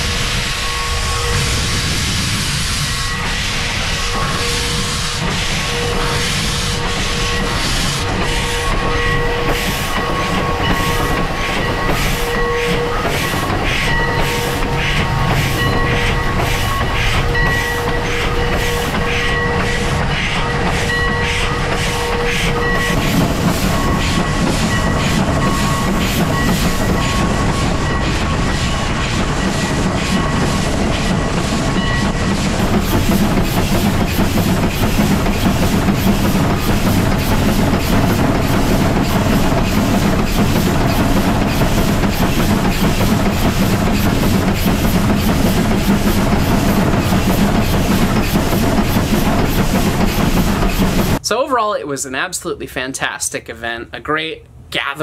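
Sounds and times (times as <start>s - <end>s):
steady high ringing tone: 0.0s - 32.3s
steam locomotive running: 0.0s - 53.2s.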